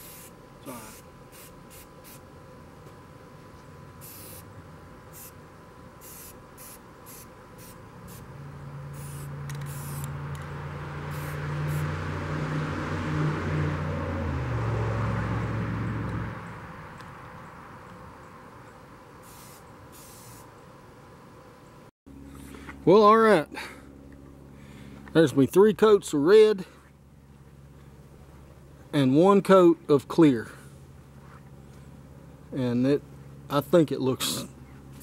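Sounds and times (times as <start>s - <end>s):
spray can hissing bursts: 0.0s - 2.2s, 4.0s - 4.5s, 5.1s - 5.4s, 6.0s - 8.3s, 8.9s - 10.1s, 11.1s - 11.8s, 19.2s - 20.5s
deep engine hum with rushing hiss: 0.0s - 35.0s.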